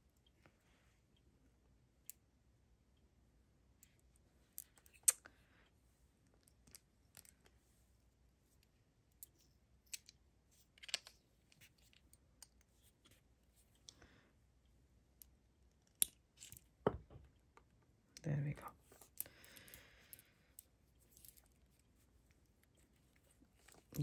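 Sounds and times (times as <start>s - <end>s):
knotting tool being handled: 6.0s - 14.0s, 18.8s - 24.0s.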